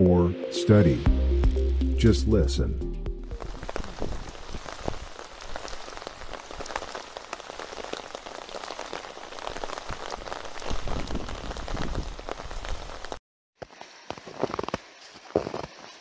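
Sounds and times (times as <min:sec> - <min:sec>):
rain falling: 0:03.2 - 0:16.0
raindrops pattering: 0:03.3 - 0:16.0.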